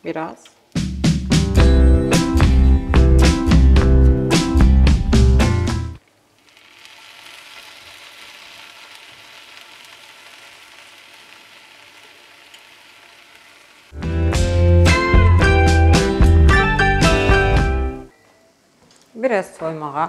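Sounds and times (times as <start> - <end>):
music: 0.8 - 6.0, 14.0 - 18.1
food sizzling in a frying pan: 6.2 - 14.0.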